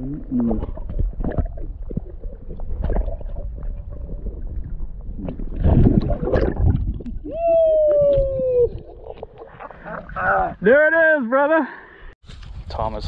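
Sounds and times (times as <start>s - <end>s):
wind rumbling on microphone: 0.2s - 9.6s.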